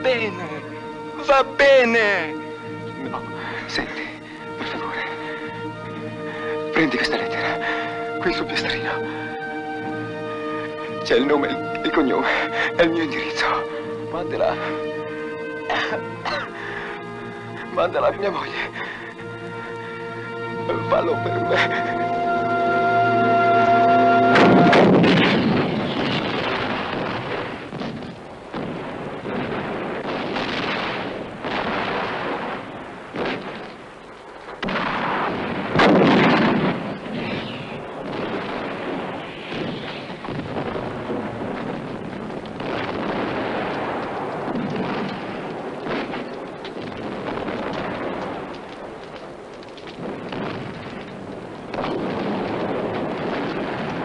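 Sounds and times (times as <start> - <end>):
music chord: 0.0 - 26.4
explosions: 23.6 - 54.0
gunfire: 24.4 - 54.0.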